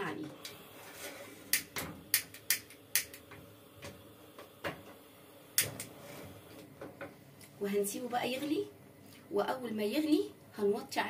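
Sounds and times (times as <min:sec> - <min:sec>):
stove igniter clicking: 0:01.5 - 0:06.0.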